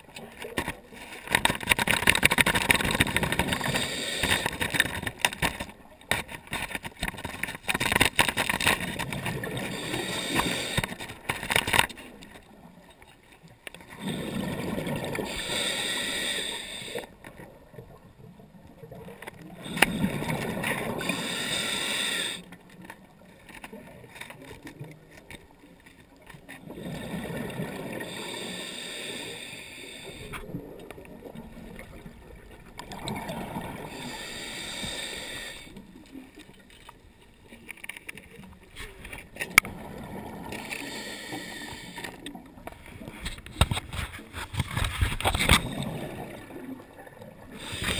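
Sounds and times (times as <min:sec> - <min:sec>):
scuba regulator breathing: 0:01.8 - 0:05.0, 0:09.4 - 0:11.5, 0:13.9 - 0:17.2, 0:19.4 - 0:22.6, 0:26.7 - 0:30.7, 0:33.6 - 0:36.0, 0:40.3 - 0:43.9, 0:47.4 - 0:47.9
exhaled bubbles rushing: 0:14.0 - 0:15.4, 0:26.6 - 0:28.2, 0:30.5 - 0:34.1, 0:39.6 - 0:40.6, 0:45.5 - 0:47.8.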